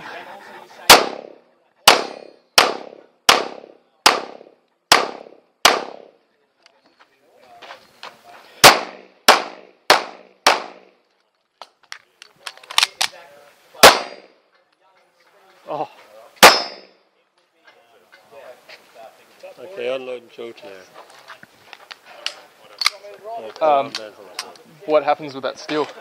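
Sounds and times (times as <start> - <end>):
pistol shots: 0.9 - 6.1, 8.6 - 10.9, 13.8 - 14.3, 16.4 - 16.9.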